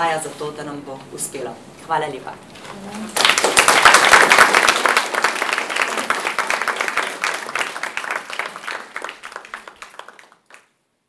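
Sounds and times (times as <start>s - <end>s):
audience applauding: 3.1s - 10.7s.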